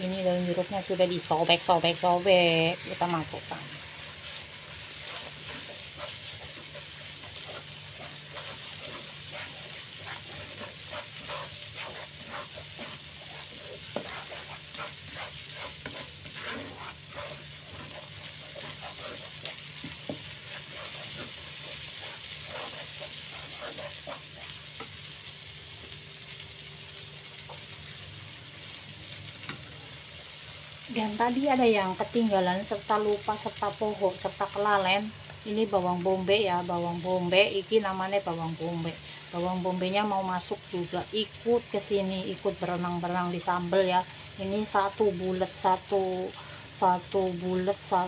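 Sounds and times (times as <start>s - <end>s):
spice paste sizzling in oil: 0.0s - 48.0s
plastic spatula scraping wok: 2.0s - 25.0s.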